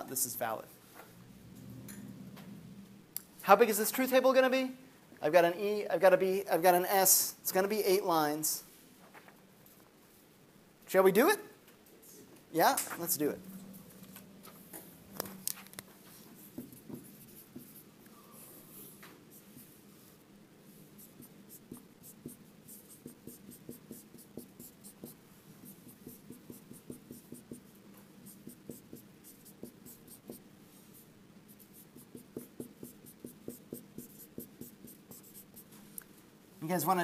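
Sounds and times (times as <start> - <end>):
marker writing on whiteboard: 16.1 - 30.5, 31.5 - 35.7.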